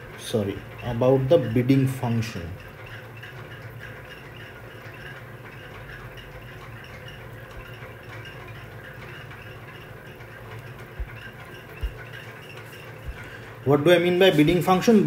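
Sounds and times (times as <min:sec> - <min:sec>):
steady low hum: 0:00.0 - 0:14.8
stylus tapping on glass screen: 0:11.0 - 0:12.1, 0:13.0 - 0:13.4.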